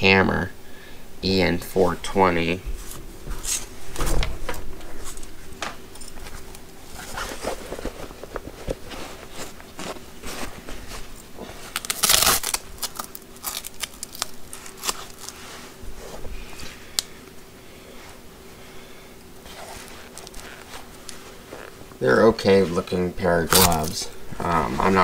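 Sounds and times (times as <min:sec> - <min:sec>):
leather rustle: 0:04.9 - 0:16.6, 0:19.4 - 0:22.9
leather gloves scuffing and rubbing: 0:06.0 - 0:12.2, 0:14.4 - 0:16.6, 0:19.4 - 0:23.9.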